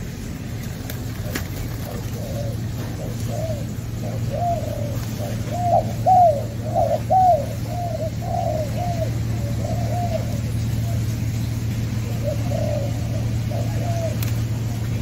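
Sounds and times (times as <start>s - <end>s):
doves cooing: 0.0s - 15.0s
steady low hum: 0.0s - 15.0s.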